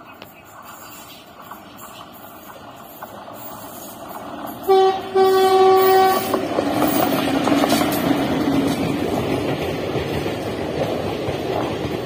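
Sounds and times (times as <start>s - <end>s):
train wheels rumbling on rail: 0.0s - 12.0s
train horn blasts: 4.6s - 6.5s.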